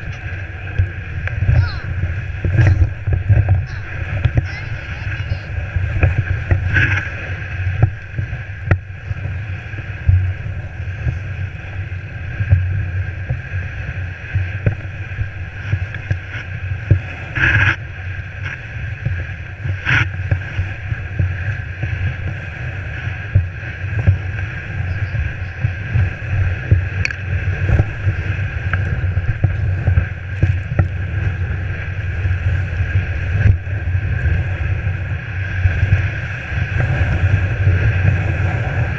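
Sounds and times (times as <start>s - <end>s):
sled runners rumbling on snow: 0.0s - 38.9s.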